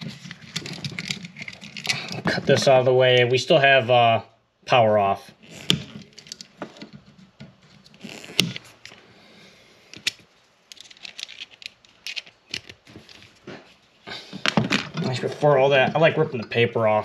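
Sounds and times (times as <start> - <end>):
small clicks and scrapes of wire: 9.9 - 13.8.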